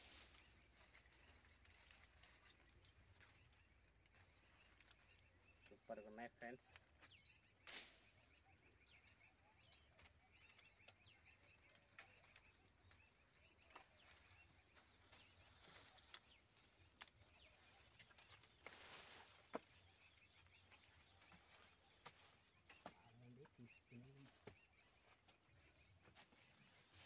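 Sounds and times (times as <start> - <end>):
birds chirping: 0.0 - 27.0
branches clicking and rustling: 0.0 - 27.0.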